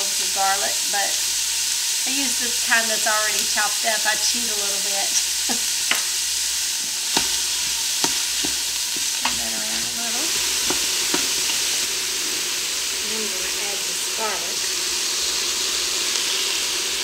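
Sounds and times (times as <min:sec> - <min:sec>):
onion sizzling in hot oil: 0:00.0 - 0:17.0
wooden spoon knocking on pot: 0:07.1 - 0:07.4, 0:08.0 - 0:09.5, 0:10.6 - 0:11.7.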